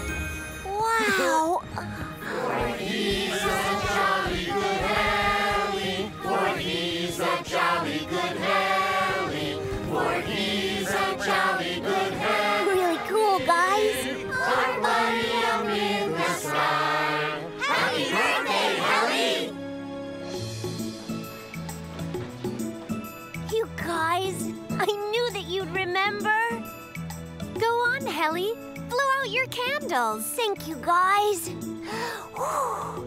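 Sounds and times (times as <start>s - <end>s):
musical accompaniment: 0.0s - 30.8s
group of people singing: 2.2s - 19.6s.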